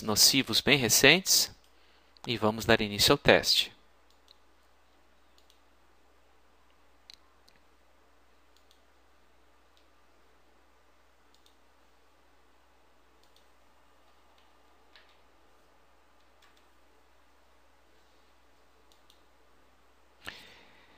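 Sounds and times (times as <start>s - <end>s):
faint computer mouse clicks: 5.3s - 5.6s, 8.5s - 8.9s, 11.3s - 11.6s, 13.2s - 13.5s, 18.9s - 19.3s.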